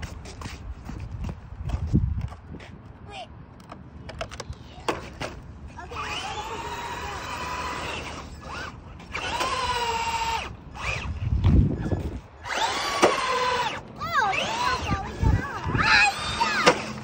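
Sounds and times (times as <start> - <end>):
rc car electric motor whining: 5.8 - 17.0.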